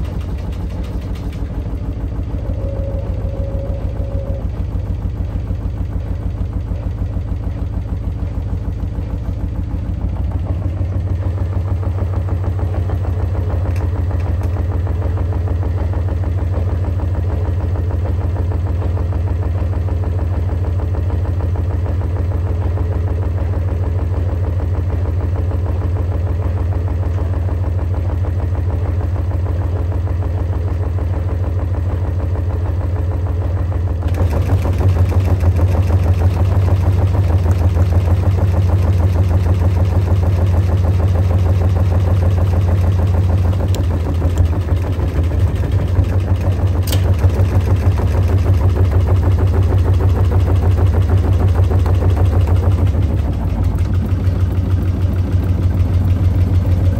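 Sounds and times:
washing machine drum spinning: 0:00.0 - 0:19.1, 0:33.9 - 0:56.9.

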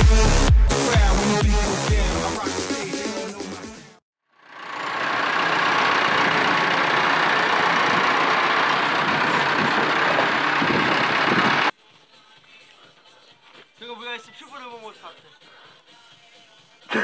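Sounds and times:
music: 0:00.0 - 0:04.0, 0:11.7 - 0:17.0
tractor diesel engine running: 0:04.4 - 0:11.7.

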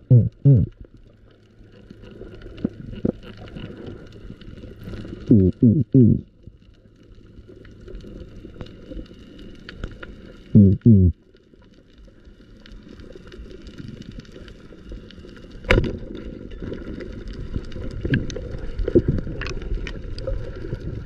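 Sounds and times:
underwater rumble: 0:00.0 - 0:21.0
small underwater clicks: 0:00.7 - 0:05.3, 0:06.2 - 0:21.0.

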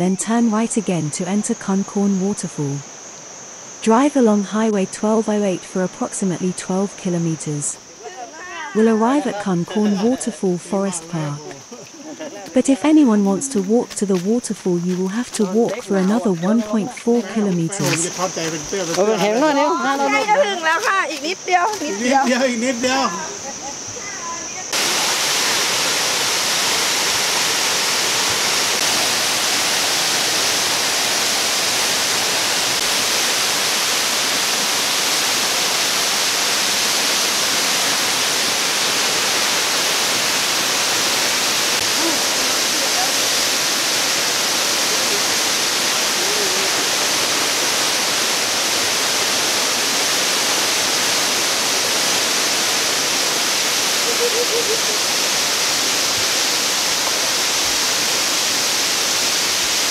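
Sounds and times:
waterfall rushing onto rocks: 0:24.7 - 0:59.9.

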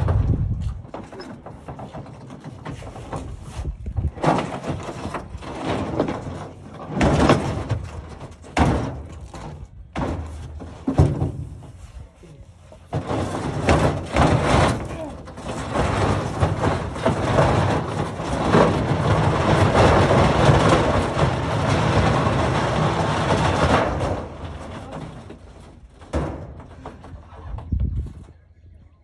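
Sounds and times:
rattling and scraping: 0:00.0 - 0:28.4
knocks and bangs: 0:04.0 - 0:11.8, 0:12.9 - 0:27.7.

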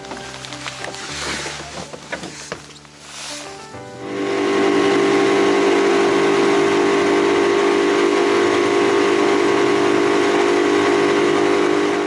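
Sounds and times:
steady hiss: 0:00.2 - 0:05.6
outboard motor droning: 0:03.0 - 0:12.0.

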